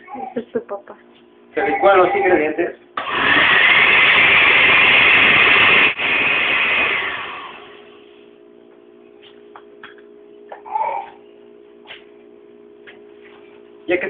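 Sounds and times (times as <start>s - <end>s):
blender running: 3.0s - 8.0s.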